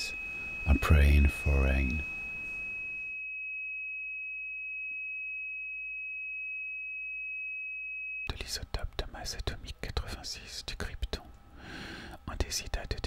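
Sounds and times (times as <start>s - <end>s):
high-pitched sine tone: 0.0s - 8.4s.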